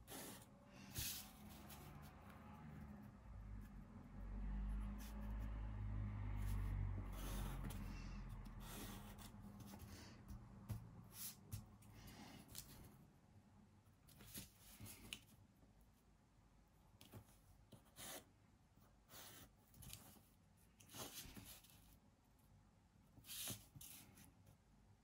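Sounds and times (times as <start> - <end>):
pencil scratching on paper: 0.0 - 2.9, 4.7 - 5.5, 6.4 - 10.0, 17.7 - 18.3, 19.0 - 22.0.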